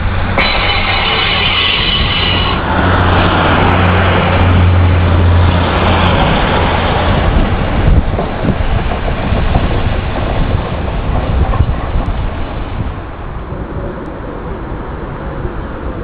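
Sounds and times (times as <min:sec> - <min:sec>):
high whine: 0:00.0 - 0:05.6
diesel train droning past: 0:00.0 - 0:16.0.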